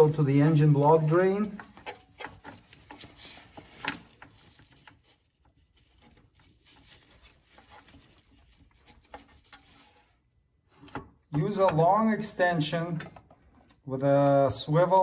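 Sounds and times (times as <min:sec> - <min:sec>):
rubber hose rubbing and clicking: 0:00.0 - 0:11.6.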